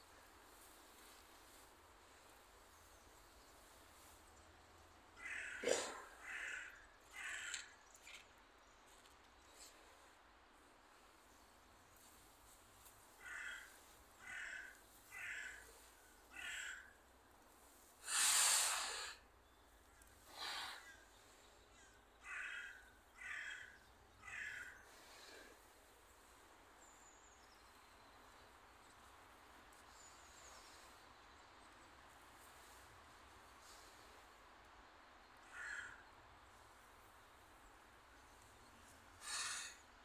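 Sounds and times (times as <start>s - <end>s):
crow cawing: 5.2s - 7.8s, 13.2s - 17.0s, 22.2s - 24.8s, 35.4s - 36.1s, 39.2s - 39.8s.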